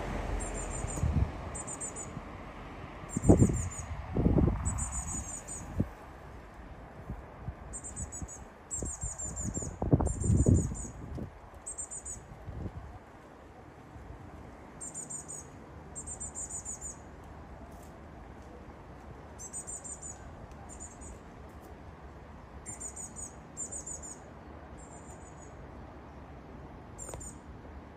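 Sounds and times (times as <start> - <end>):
bird high chirps: 0.4 - 2.2, 3.1 - 3.9, 4.6 - 5.8, 7.7 - 11.0, 14.8 - 17.1, 19.4 - 21.2, 22.6 - 25.6.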